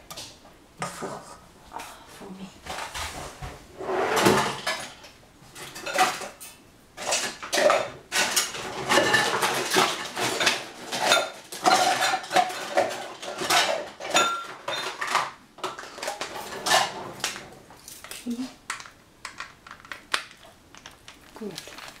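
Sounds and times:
metal cookware clattering: 0:04.0 - 0:05.0, 0:05.6 - 0:18.3.

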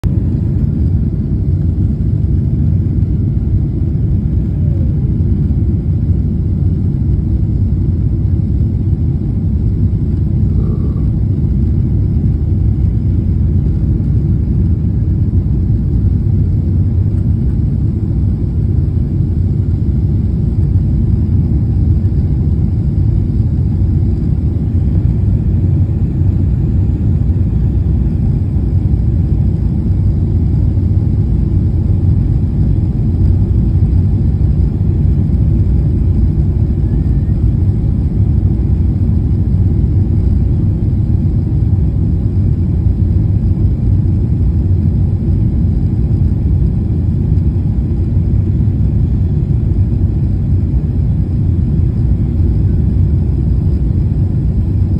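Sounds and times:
airliner cabin engine rumble: 0:00.0 - 0:54.9
faint tone: 0:10.4 - 0:11.3.

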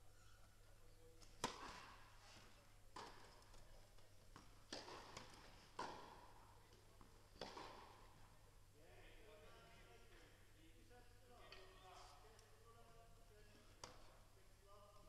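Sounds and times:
tennis ball hit with rackets: 0:01.3 - 0:02.0, 0:02.9 - 0:03.4, 0:04.4 - 0:06.4, 0:07.0 - 0:08.1.

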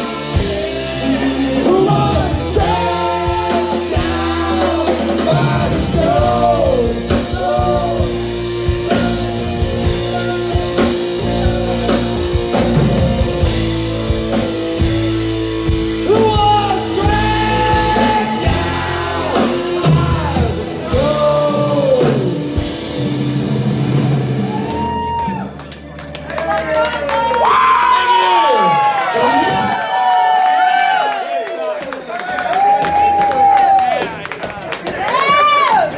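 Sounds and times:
person singing into microphone: 0:00.0 - 0:08.2, 0:16.0 - 0:22.4
drum kit: 0:00.0 - 0:25.8
electric guitar: 0:00.0 - 0:29.9.

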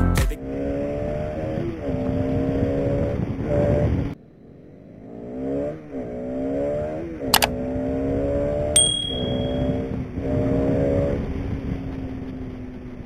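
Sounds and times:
motorcycle engine accelerating: 0:00.2 - 0:13.0
sharp click: 0:07.3 - 0:07.5.

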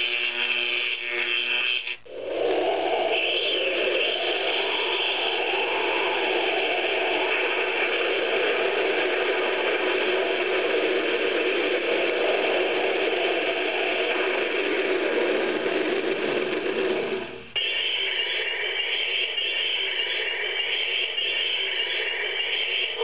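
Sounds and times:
steady hiss from small speaker: 0:02.0 - 0:17.6.

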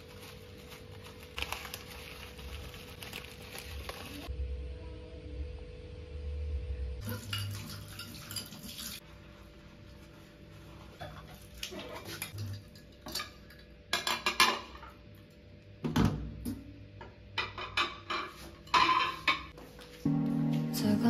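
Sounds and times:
plates clinking in a steel sink: 0:11.0 - 0:15.0, 0:17.4 - 0:19.5
soft background music: 0:20.0 - 0:21.0.

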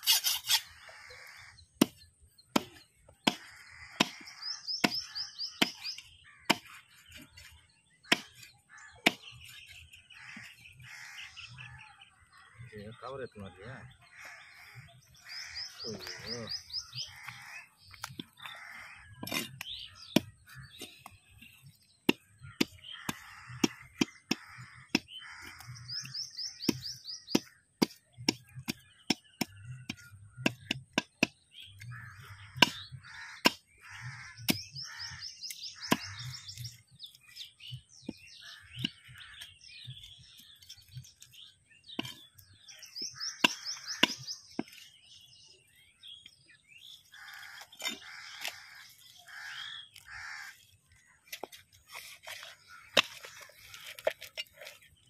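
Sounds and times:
blade scraping: 0:00.0 - 0:00.9, 0:47.2 - 0:55.0
knife chopping on wooden block: 0:01.8 - 0:06.8, 0:08.1 - 0:08.4, 0:22.0 - 0:31.9, 0:42.0 - 0:42.4, 0:43.0 - 0:44.8
bird trilling: 0:13.9 - 0:21.7, 0:42.0 - 0:45.0.

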